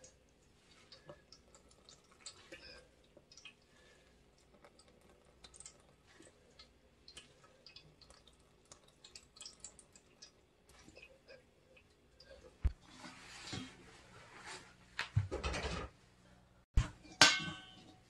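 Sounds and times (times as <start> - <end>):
wet squelches and drips: 0.0 - 13.6.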